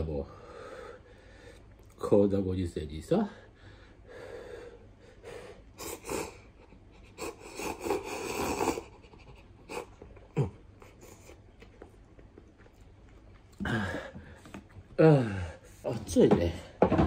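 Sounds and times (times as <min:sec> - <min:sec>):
man slurping noodles: 0:07.2 - 0:09.0.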